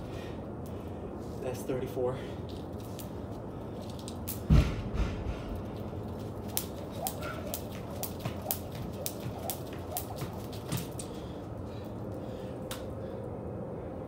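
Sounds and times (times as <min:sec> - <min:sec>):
heavy thud: 0:04.4 - 0:05.8
jump rope slapping concrete: 0:05.6 - 0:11.4.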